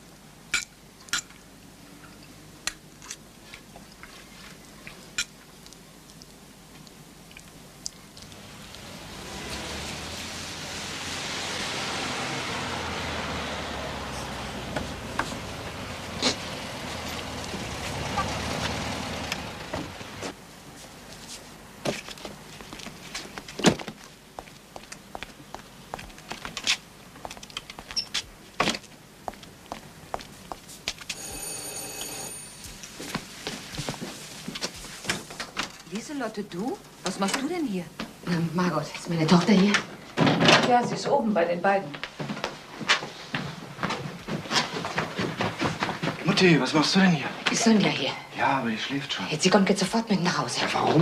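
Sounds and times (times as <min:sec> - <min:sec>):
steady hiss: 0:28.2 - 0:38.9.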